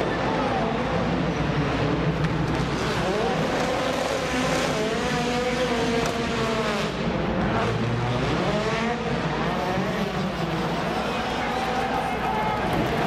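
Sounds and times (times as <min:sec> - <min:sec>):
rally car engines revving: 0:00.0 - 0:13.0.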